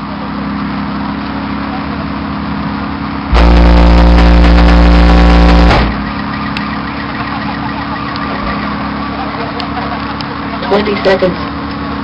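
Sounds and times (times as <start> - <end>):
loud subwoofer bass tone: 3.3 - 6.2.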